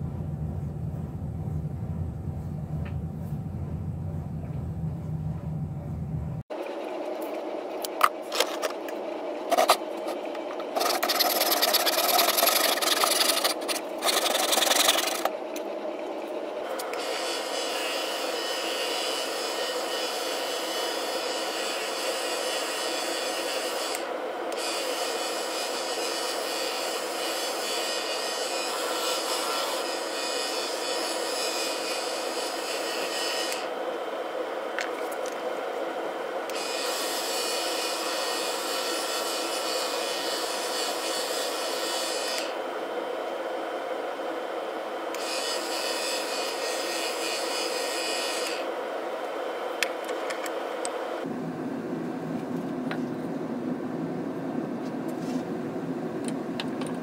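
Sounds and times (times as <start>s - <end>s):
lathe motor hum: 6.5s - 51.3s
harsh rasping noise: 9.5s - 15.4s
sandpaper hissing on spinning wood: 10.7s - 15.3s.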